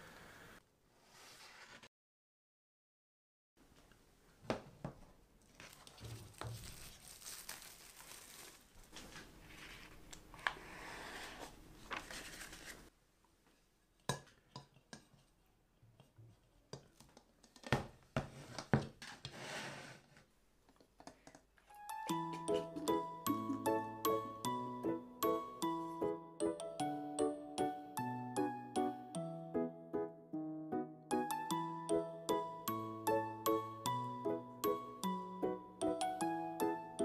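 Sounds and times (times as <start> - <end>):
cling film crinkling: 5.5 - 9.9.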